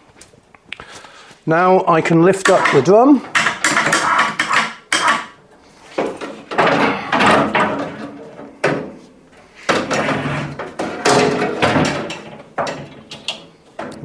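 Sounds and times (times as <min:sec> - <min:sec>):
metal scraping: 0:02.4 - 0:06.0, 0:06.7 - 0:11.8.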